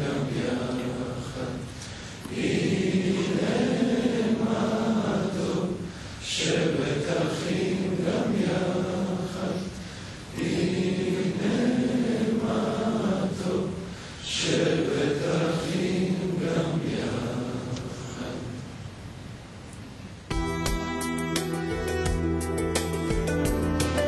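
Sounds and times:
men singing together: 2.3s - 5.8s.

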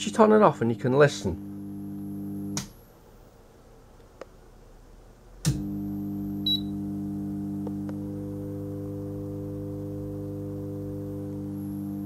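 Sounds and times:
microwave loud humming: 0.7s - 2.7s, 5.4s - 12.0s.

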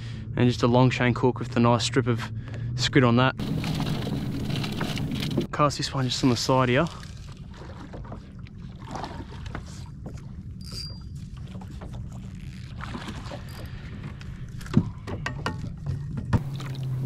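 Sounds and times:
water lapping against boat hull: 3.4s - 5.5s, 6.2s - 17.0s.

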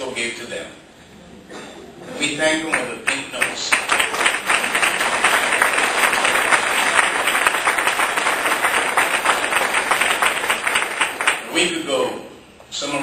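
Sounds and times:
audience applauding: 2.6s - 11.6s.

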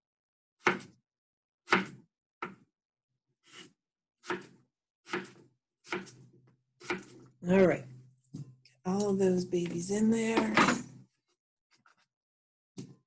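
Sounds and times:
knife chopping on cutting board: 0.6s - 1.0s, 1.7s - 2.6s, 3.5s - 6.2s, 6.8s - 7.2s.

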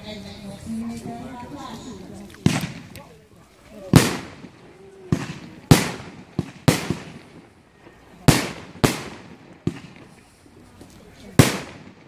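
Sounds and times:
fireworks bangs: 2.4s - 12.0s.

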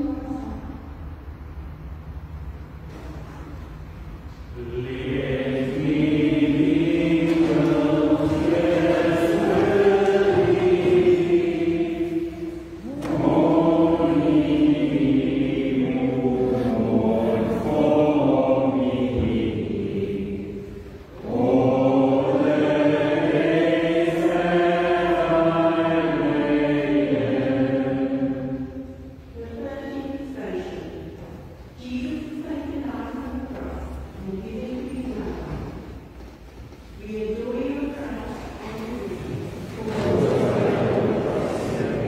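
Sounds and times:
voices singing a slow hymn: 4.2s - 42.0s.

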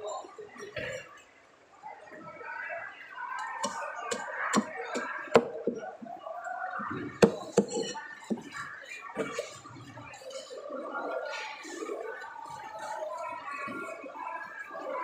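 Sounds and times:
cleaver knocking on wooden block: 7.2s - 8.4s.

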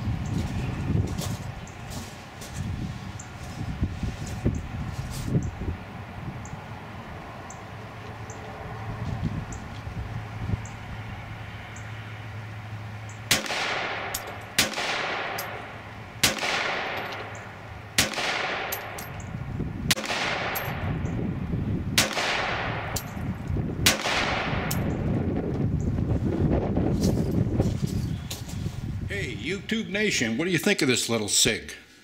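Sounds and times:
pistol shots with echo: 13.3s - 17.4s, 18.0s - 19.2s, 19.9s - 20.9s, 22.0s - 23.1s, 23.8s - 24.9s.

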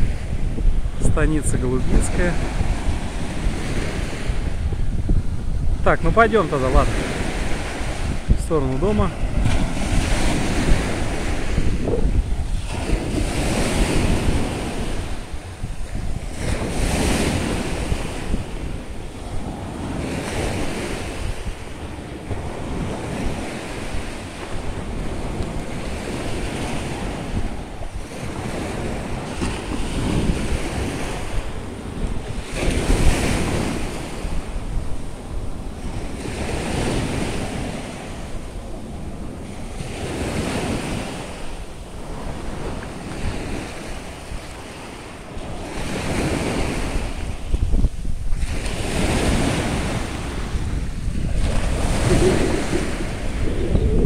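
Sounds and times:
small waves breaking on sand: 0.0s - 54.0s
wind buffeting microphone: 0.0s - 54.0s.

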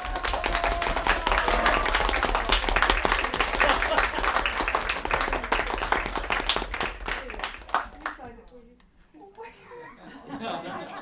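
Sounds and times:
people applauding: 0.0s - 8.3s.

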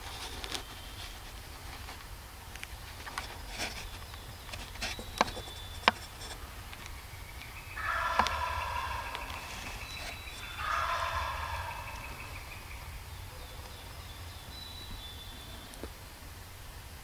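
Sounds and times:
turkey gobbling: 7.7s - 13.7s.

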